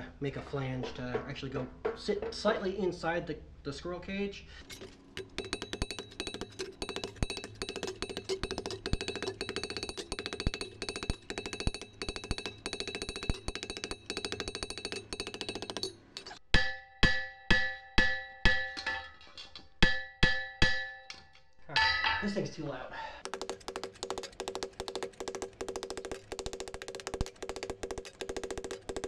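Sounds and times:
hammer ringing on steel: 0:05.2 - 0:19.1, 0:19.8 - 0:22.2.

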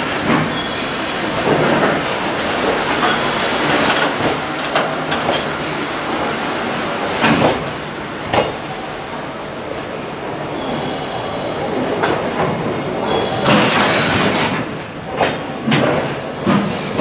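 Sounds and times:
train wheels rumbling on rail: 0:00.0 - 0:17.0
clacks over rail joints: 0:01.4 - 0:06.4, 0:07.0 - 0:08.6, 0:13.4 - 0:17.0.

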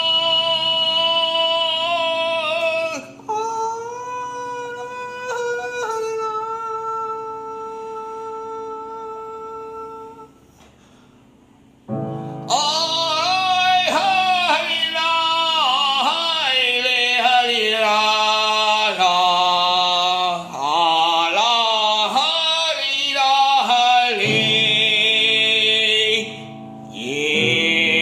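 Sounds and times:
man singing a folk song: 0:00.0 - 0:10.3, 0:12.5 - 0:28.0
keyboard accompaniment: 0:10.2 - 0:28.0.

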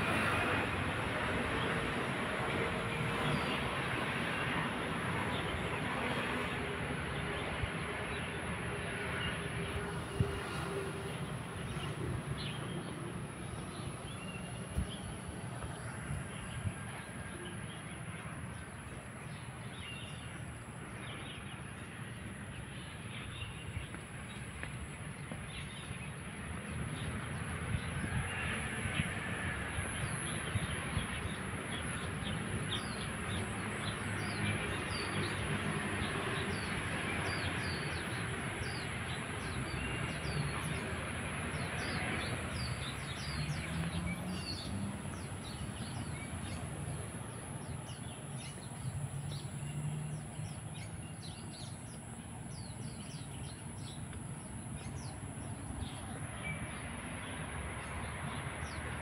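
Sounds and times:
street traffic rumble: 0:00.0 - 0:59.0.

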